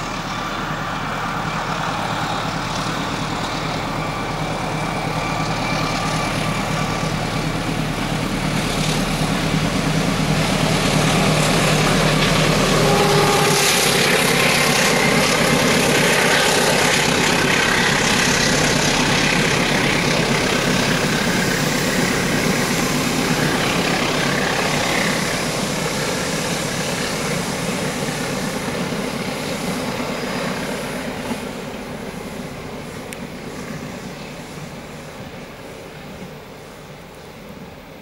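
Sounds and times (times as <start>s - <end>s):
diesel locomotive engine: 0.0s - 38.0s
train wheels rolling on rails: 0.0s - 38.0s.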